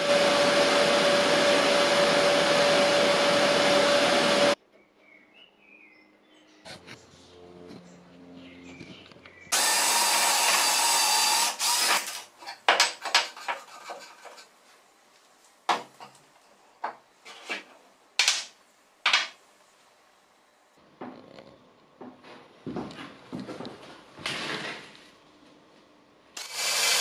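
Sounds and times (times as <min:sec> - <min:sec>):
power drill boring into wood: 0:09.5 - 0:12.3, 0:26.4 - 0:27.0.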